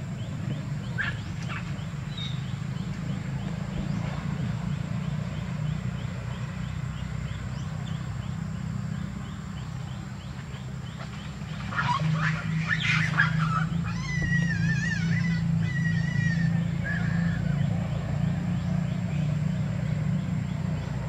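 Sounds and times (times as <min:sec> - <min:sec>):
steady low hum: 0:00.0 - 0:21.0
macaques crying: 0:11.7 - 0:17.6.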